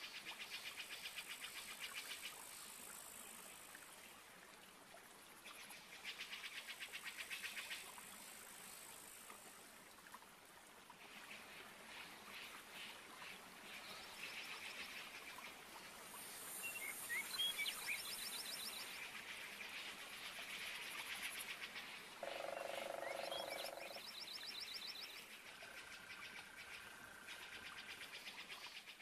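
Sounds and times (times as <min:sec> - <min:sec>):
pulsing trills of calling animals: 0:22.2 - 0:24.0.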